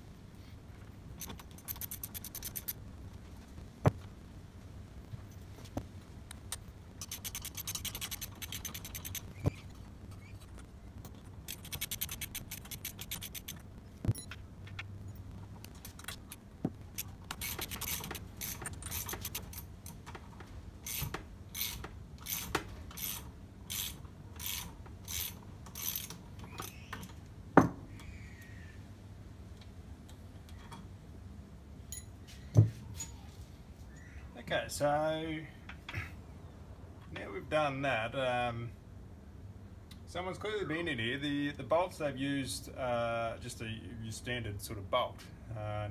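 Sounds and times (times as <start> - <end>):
ratchet wrench clicking: 1.2 - 2.8, 7.0 - 9.4, 11.5 - 13.6, 17.0 - 19.6, 20.9 - 26.2.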